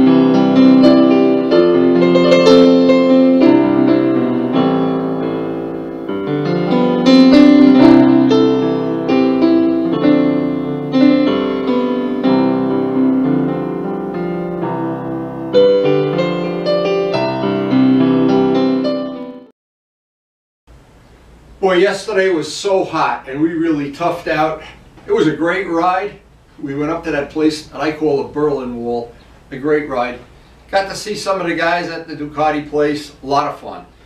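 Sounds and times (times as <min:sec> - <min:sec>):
piano background music: 0:00.0 - 0:19.5.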